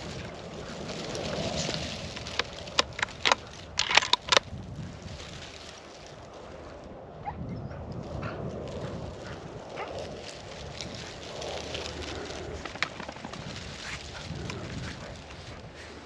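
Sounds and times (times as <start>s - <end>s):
footsteps crunching through stubble: 0.0s - 16.0s
sharp clicks and knocks: 2.2s - 4.5s.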